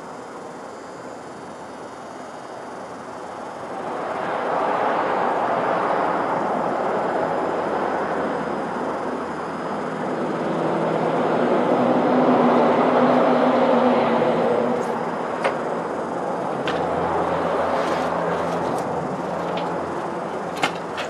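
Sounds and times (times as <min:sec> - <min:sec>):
road traffic passing: 0:02.3 - 0:21.0
truck engine hum: 0:08.4 - 0:21.0.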